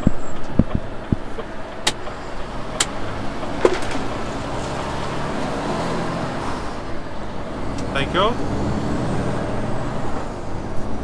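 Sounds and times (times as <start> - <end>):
sharp clicks and knocks: 0.0 - 4.8
truck engine and road noise: 0.0 - 11.0.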